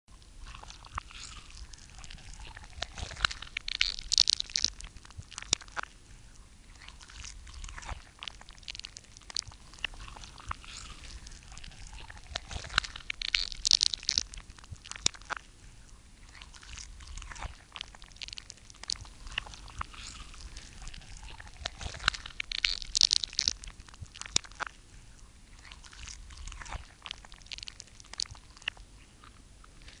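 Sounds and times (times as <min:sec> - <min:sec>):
crunching chewing clicks: 0:00.1 - 0:30.0.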